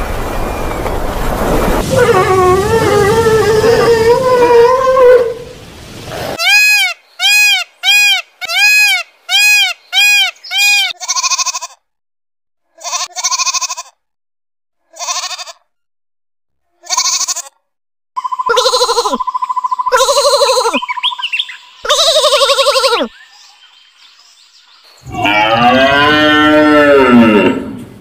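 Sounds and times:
lamb bleating: 10.5s - 11.8s, 12.8s - 14.0s, 14.9s - 15.7s, 16.8s - 17.6s, 18.5s - 19.2s, 19.9s - 20.8s, 21.9s - 23.1s.

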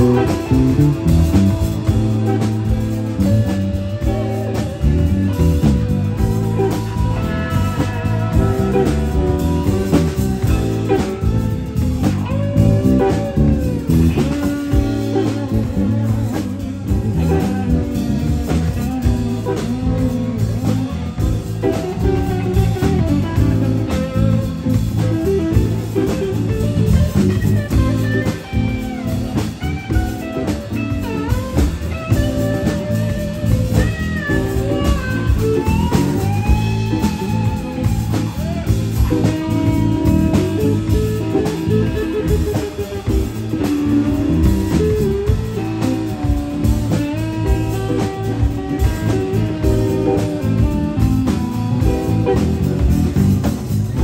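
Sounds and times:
bass guitar: 0.0s - 54.0s
drum kit: 0.0s - 54.0s
electric guitar solo: 0.0s - 54.0s.

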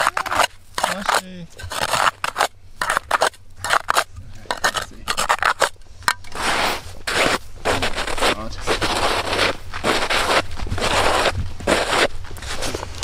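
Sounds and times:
ice auger scraping into ice: 0.0s - 5.7s, 6.3s - 12.8s.

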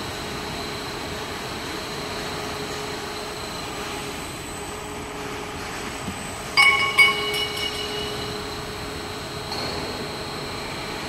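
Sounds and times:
machine drone with faint whine: 0.0s - 11.0s
sharp metal clangs: 6.6s - 8.4s.

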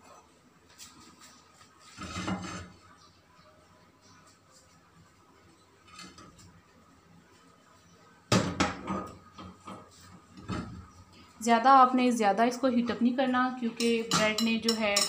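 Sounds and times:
kitchenware clattering: 13.5s - 15.0s.

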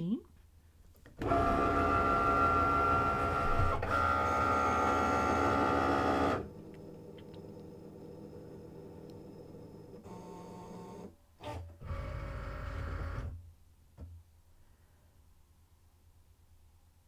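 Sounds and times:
cutting machine motors whining: 1.2s - 13.3s.

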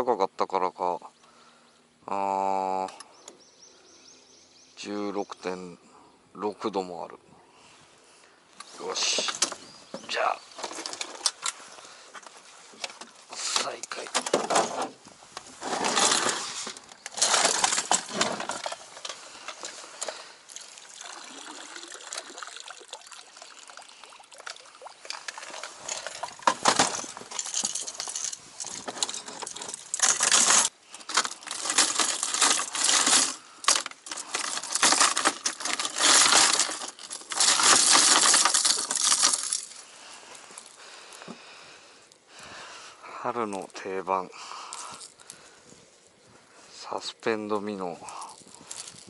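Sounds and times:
lures clattering in tackle box: 9.0s - 11.6s, 12.8s - 15.0s, 15.6s - 20.3s, 24.4s - 39.8s.

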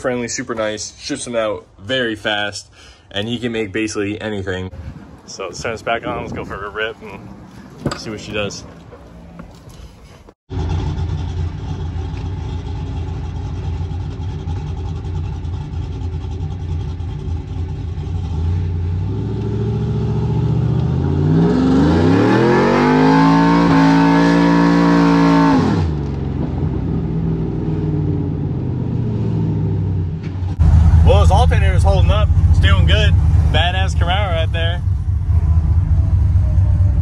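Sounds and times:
truck engine revving: 10.5s - 37.0s.

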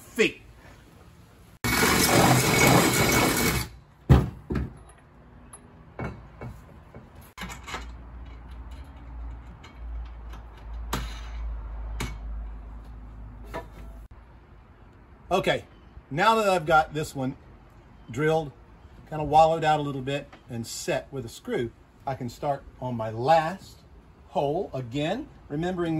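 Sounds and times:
power drill boring through metal: 1.6s - 3.7s
metal parts clicking and knocking: 6.9s - 12.3s.

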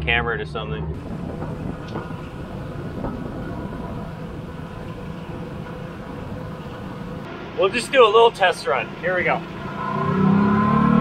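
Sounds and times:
outboard motor running: 1.0s - 9.6s.

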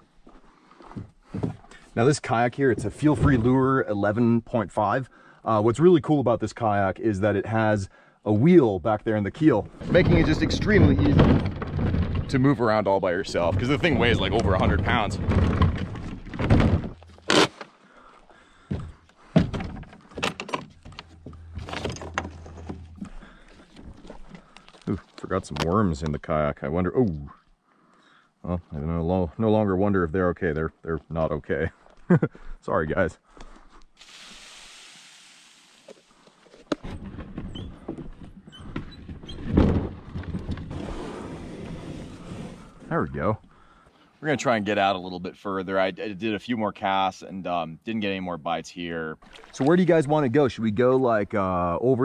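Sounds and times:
kayak dragged on rocky path: 9.7s - 17.5s, 18.6s - 25.6s, 39.3s - 43.0s
clicks and knocks of kayak fittings: 18.7s - 25.7s
low hum: 20.7s - 24.3s
soft hiss: 34.0s - 36.4s.

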